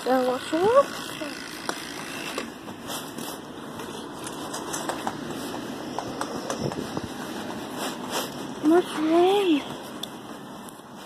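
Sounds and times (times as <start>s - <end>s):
footsteps rustling through grass: 1.8s - 4.2s, 6.8s - 11.0s.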